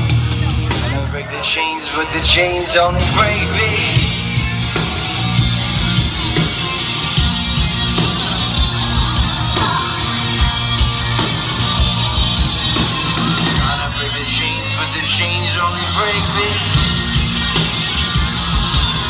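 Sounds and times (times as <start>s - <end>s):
electric guitar: 0.0s - 19.0s
steady drum beat: 3.0s - 14.4s, 16.3s - 19.0s.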